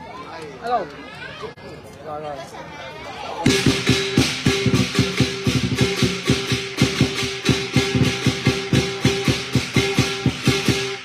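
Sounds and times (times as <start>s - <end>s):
cymbals clashing: 3.4s - 11.0s
drum beaten fast: 3.4s - 11.0s.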